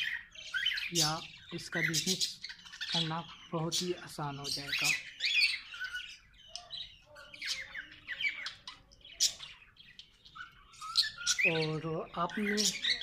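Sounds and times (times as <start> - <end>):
small aviary birds chirping and squawking: 0.0 - 13.0.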